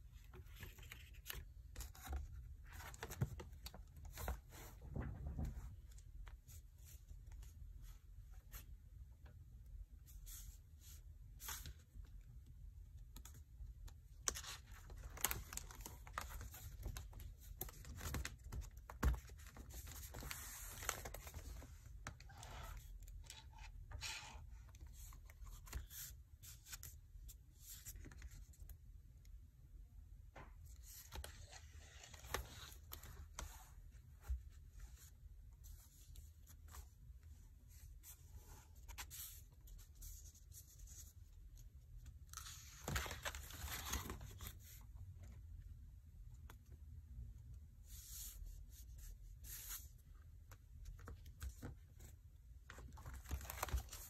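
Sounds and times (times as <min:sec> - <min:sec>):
paper pages rustling: 0:00.3 - 0:04.7, 0:52.7 - 0:54.0.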